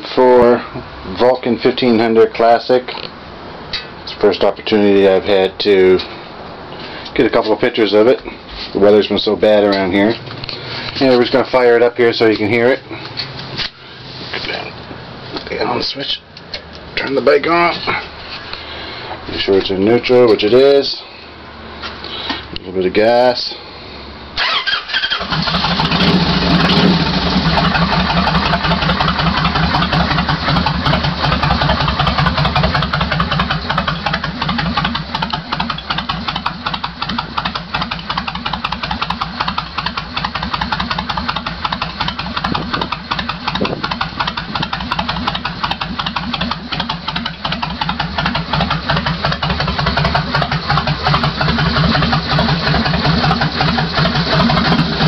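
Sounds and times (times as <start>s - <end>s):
motorcycle engine idling: 24.4s - 55.0s.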